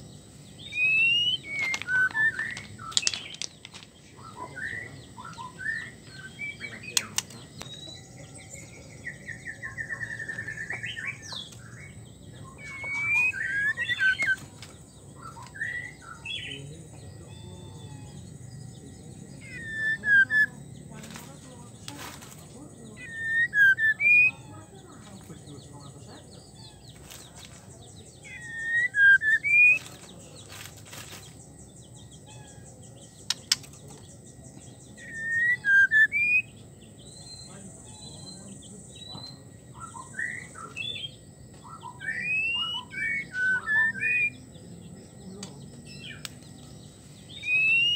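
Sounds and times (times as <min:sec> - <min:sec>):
bird trill: 0:00.0 - 0:47.9
bird singing whistled phrases: 0:00.6 - 0:03.4, 0:04.2 - 0:14.4, 0:15.2 - 0:16.6, 0:19.4 - 0:20.6, 0:23.0 - 0:24.5, 0:28.2 - 0:29.9, 0:34.9 - 0:44.5, 0:47.3 - 0:47.9
sharp bird clicks: 0:06.8 - 0:07.8, 0:33.2 - 0:34.1.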